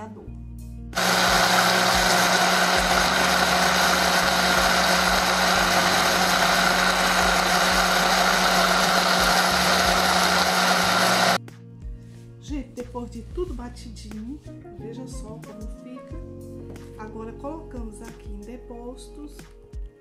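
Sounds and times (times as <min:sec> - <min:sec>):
blender motor running: 0:01.0 - 0:11.4.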